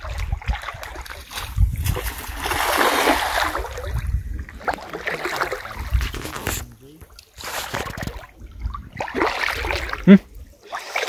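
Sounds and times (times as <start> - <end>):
cast net splashing into water: 0.0 - 4.0, 4.6 - 6.0, 8.9 - 11.0.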